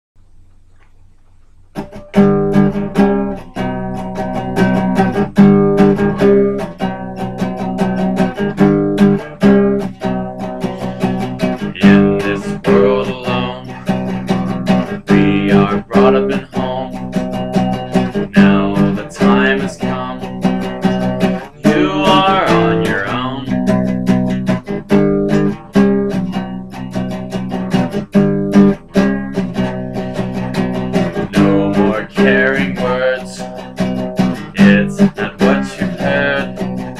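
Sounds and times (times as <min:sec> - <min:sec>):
acoustic guitar strumming: 0:01.5 - 0:36.9.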